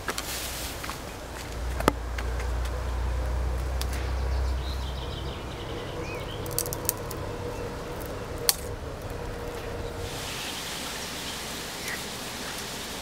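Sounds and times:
dry branch snapping: 6.4 - 7.3, 7.9 - 9.7.

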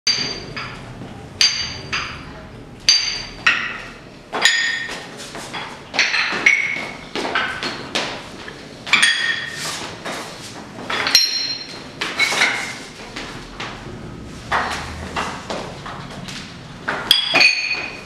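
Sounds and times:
boot heels on ringing floor tiles: 10.8 - 18.0.

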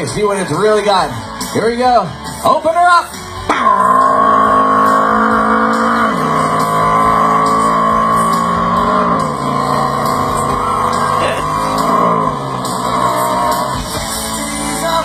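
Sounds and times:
motorcycle engine over loudspeakers: 3.5 - 14.0.

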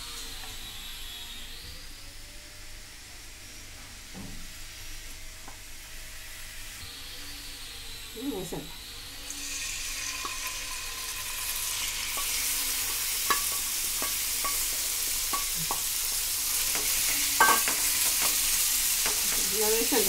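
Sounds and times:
chicken pieces sizzling in hot oil: 7.5 - 20.0.

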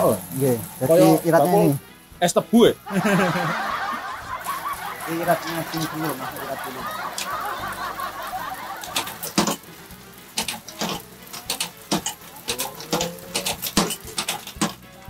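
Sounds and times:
slicing machine running: 3.1 - 15.0
bamboo clicking and snapping: 8.9 - 14.9.

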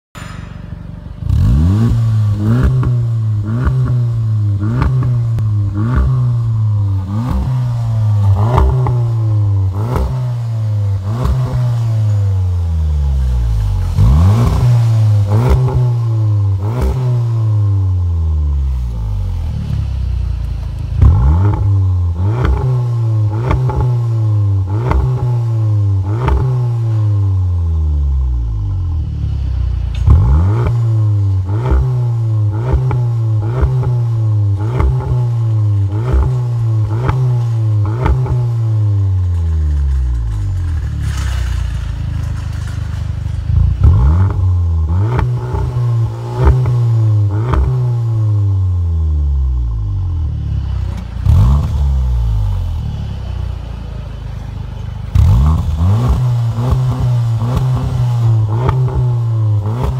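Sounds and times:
car engine revving: 1.0 - 59.9.

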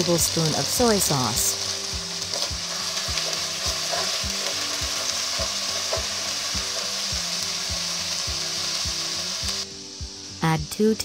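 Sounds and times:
sauce sizzling in a pan: 0.0 - 11.0
wooden spatula stirring: 2.3 - 6.2.

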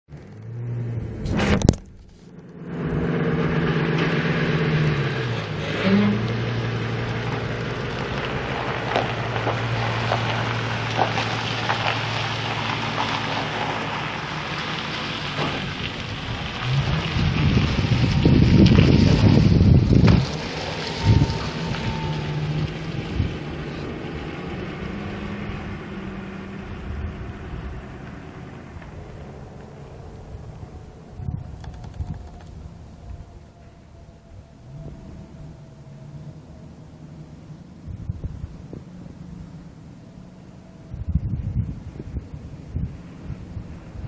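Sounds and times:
rough rushing noise: 0.8 - 36.1
truck engine idling: 1.0 - 44.0.

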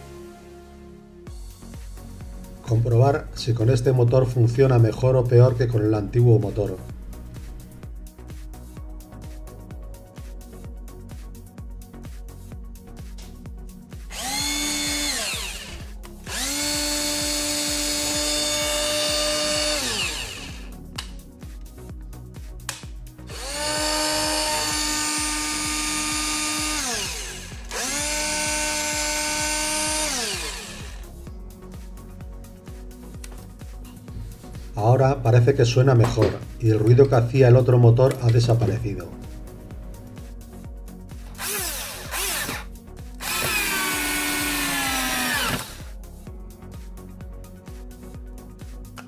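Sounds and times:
cordless drill motor whine: 14.1 - 20.8, 23.3 - 31.2, 41.4 - 45.9.

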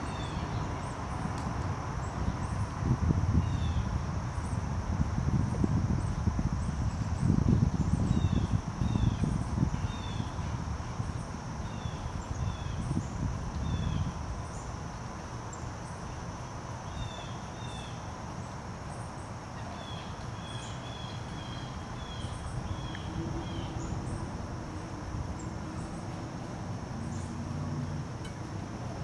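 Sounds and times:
songbirds chirping: 6.0 - 29.0.

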